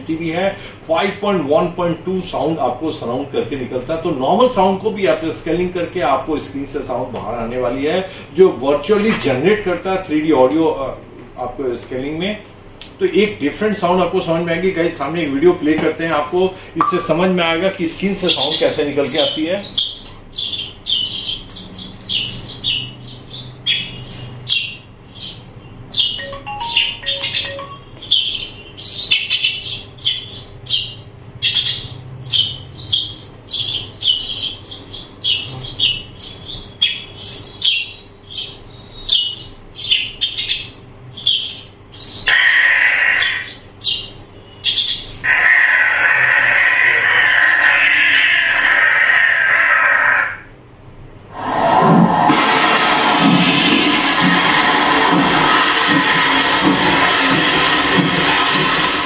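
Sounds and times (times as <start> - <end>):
birds chirping: 16.8 - 17.4, 18.1 - 50.6
loud rushing noise: 51.3 - 59.0.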